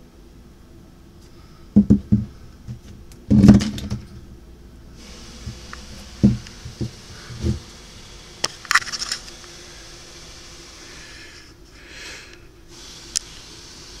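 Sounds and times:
steady hiss: 0.0s - 14.0s
soft handling bumps: 1.7s - 4.3s, 5.5s - 7.7s.

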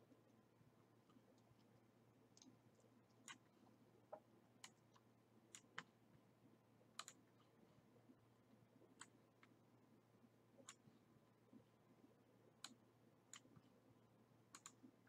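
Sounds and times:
computer mouse clicks: 2.3s - 3.5s, 4.1s - 5.9s, 7.0s - 7.5s, 9.0s - 9.6s, 10.6s - 10.8s, 12.6s - 13.7s, 14.5s - 14.9s.

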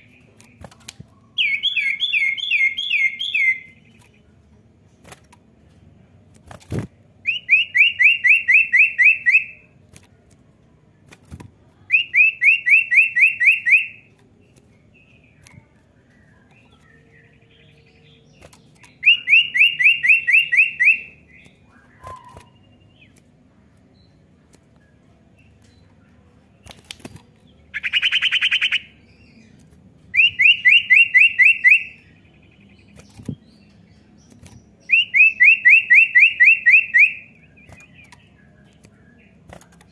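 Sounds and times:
bird singing fast trills: 1.3s - 4.0s, 16.6s - 23.2s, 27.7s - 39.4s
sharp clicks: 26.6s - 28.0s, 32.8s - 34.9s, 37.6s - 39.9s.

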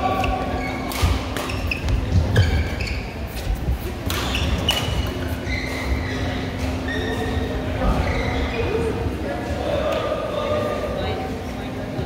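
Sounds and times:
shoes squeaking on court: 0.1s - 8.8s
rackets striking shuttlecock: 0.8s - 1.6s.

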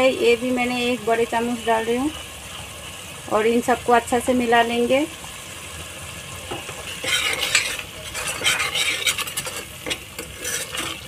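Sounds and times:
masala sizzling in oil: 0.0s - 11.0s
spoon stirring and scraping pot: 6.5s - 11.0s.

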